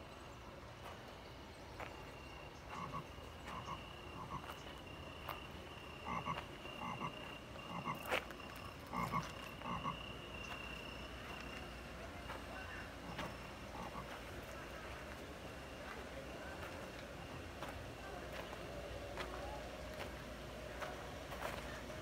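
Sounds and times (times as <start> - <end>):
frog croaking: 2.2 - 16.0.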